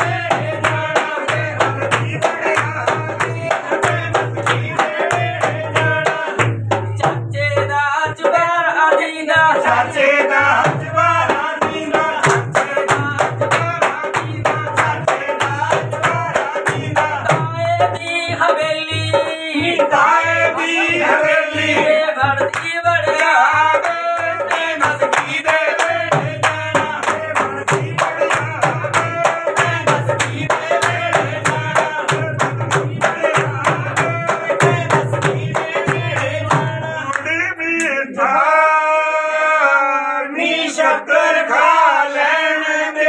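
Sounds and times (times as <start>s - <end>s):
hand clapping: 0.0s - 6.6s, 11.7s - 16.8s, 22.4s - 38.0s
group singing in chorus: 0.0s - 6.9s, 8.2s - 43.0s
drum beat: 0.0s - 37.1s.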